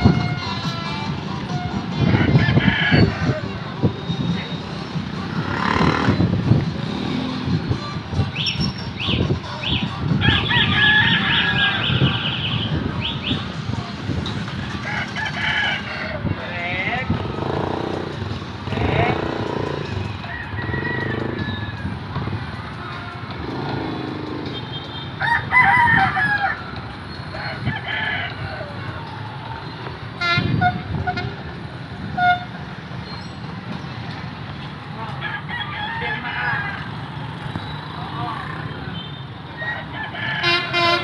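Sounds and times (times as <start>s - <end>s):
motorcycle engines rumbling: 0.0s - 41.0s
rooster crowing: 2.2s - 3.5s, 10.2s - 11.9s, 20.2s - 21.8s, 25.2s - 26.7s, 35.2s - 37.1s, 39.6s - 40.8s.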